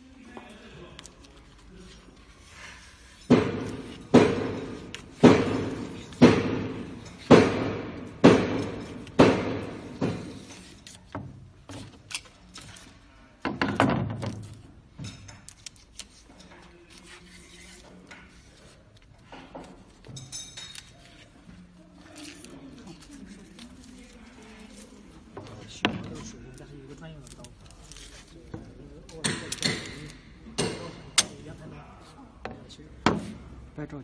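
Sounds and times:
sharp knocks echoing: 3.3 - 10.3.

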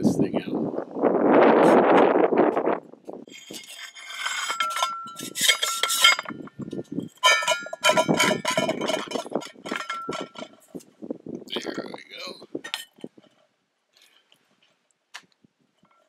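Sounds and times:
metal mug clinking: 4.3 - 10.6.

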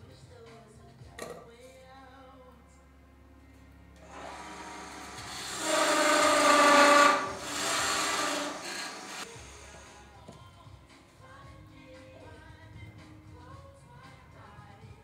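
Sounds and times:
chisel cutting wood on lathe: 4.0 - 9.8.

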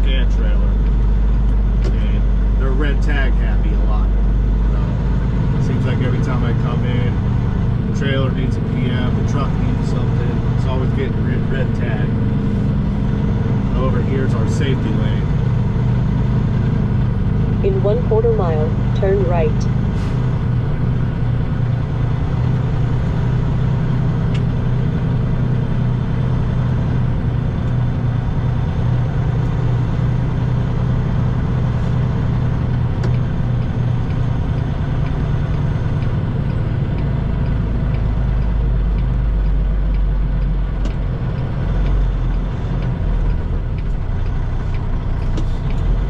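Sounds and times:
diesel truck engine droning: 0.0 - 46.0.

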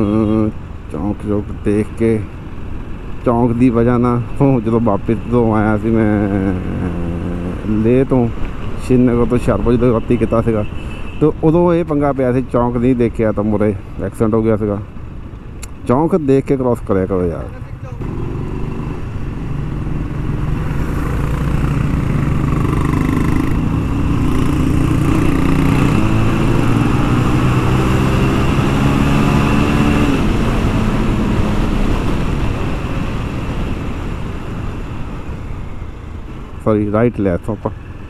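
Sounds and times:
motorcycle engine accelerating: 18.0 - 33.2
wind rushing over microphone: 18.0 - 36.6.

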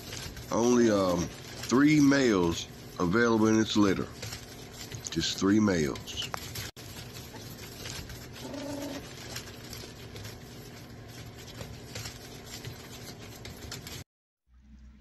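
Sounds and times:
puppy whimpering: 8.4 - 9.1.

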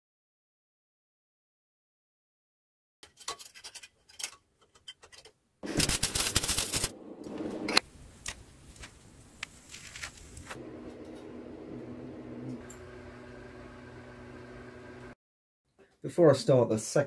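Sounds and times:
welding arc crackling: 5.6 - 7.8.

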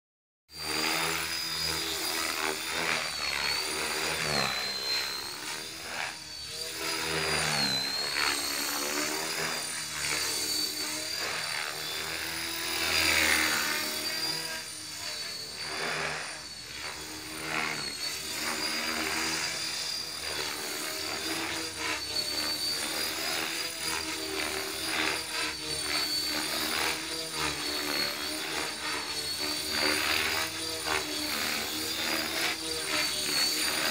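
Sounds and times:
rc helicopter motor whine: 0.5 - 33.9
rotor blades whirring: 0.6 - 33.9.

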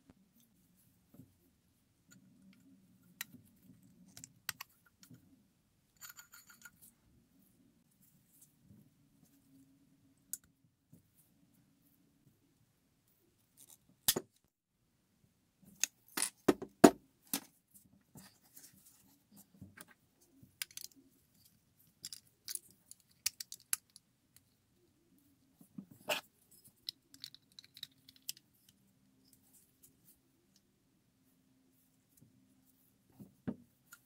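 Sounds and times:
toy parts clicking and clacking: 20.6 - 24.5, 26.6 - 28.8.

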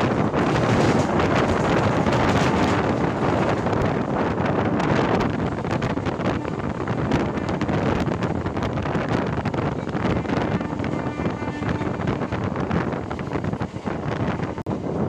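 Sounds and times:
wheels clicking on track: 0.0 - 4.2
train carriage rumble: 0.0 - 15.0
wind on microphone: 0.0 - 15.0.

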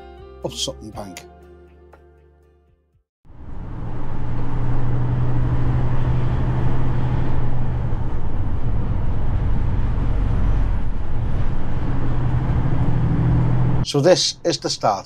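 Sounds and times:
lorry engine drone: 3.3 - 14.8
road and tyre noise: 3.3 - 15.0.

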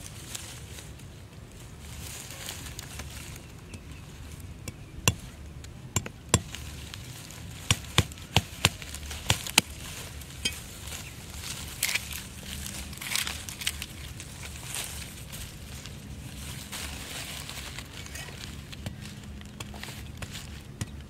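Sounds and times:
soft rustle: 0.0 - 4.5, 6.5 - 20.8.

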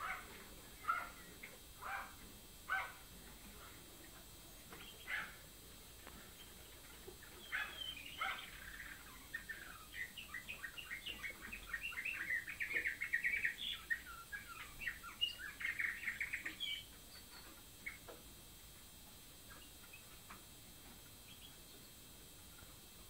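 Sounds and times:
canary singing: 0.0 - 3.0, 4.7 - 5.5, 6.3 - 18.2, 19.4 - 20.4.

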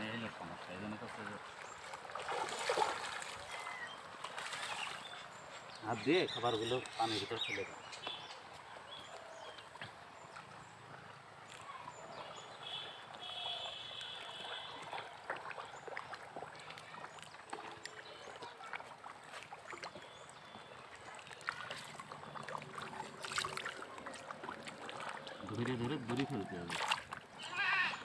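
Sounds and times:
fish splashing at pond surface: 0.5 - 28.0
bird chirping: 3.5 - 10.8, 11.7 - 14.8.

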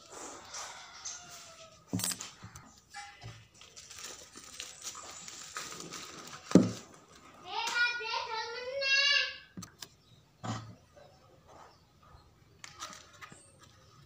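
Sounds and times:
paper rustling: 1.2 - 7.2
plastic wrapping tearing and crinkling: 1.9 - 2.4, 3.5 - 7.3.

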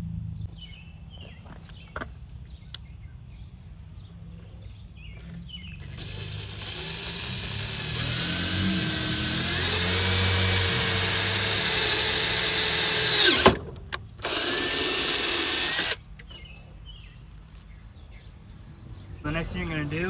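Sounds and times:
cordless drill whining: 5.9 - 13.6, 14.2 - 16.0
drill click: 5.9 - 13.6, 14.2 - 16.0.

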